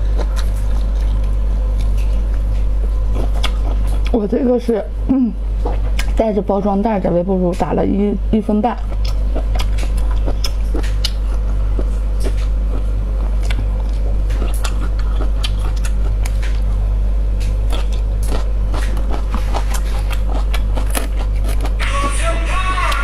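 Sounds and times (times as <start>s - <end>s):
wet mouth chewing clicks: 0.0s - 4.2s, 5.6s - 6.2s, 8.8s - 16.7s, 17.4s - 21.8s
low hum: 0.0s - 23.0s.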